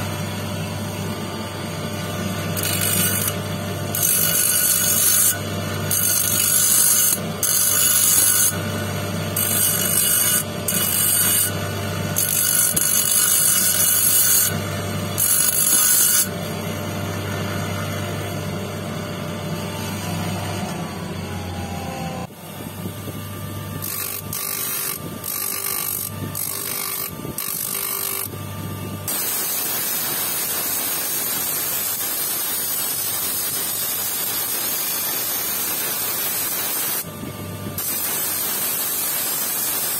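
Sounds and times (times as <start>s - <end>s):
lapidary wheel humming: 0.0s - 29.1s
stone hissing on grinding wheel: 2.5s - 8.7s, 9.3s - 11.6s, 12.2s - 14.6s, 15.2s - 16.3s, 29.1s - 37.1s.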